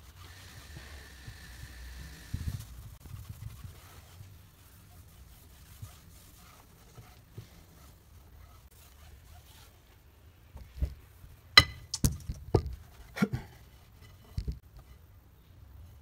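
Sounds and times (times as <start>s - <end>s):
cloth rubbing on metal: 0.0s - 10.2s.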